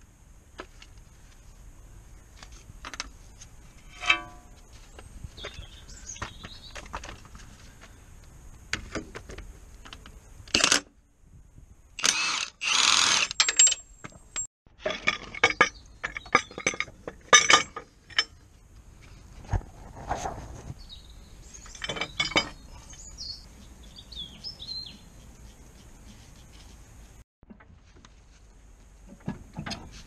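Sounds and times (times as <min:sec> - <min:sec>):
impact wrench bursts: 0:12.0 - 0:13.4.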